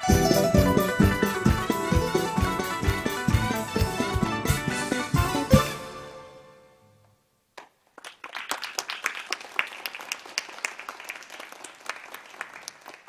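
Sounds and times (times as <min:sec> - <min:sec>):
song ending notes: 0:00.0 - 0:06.8
audience applause: 0:07.9 - 0:13.0.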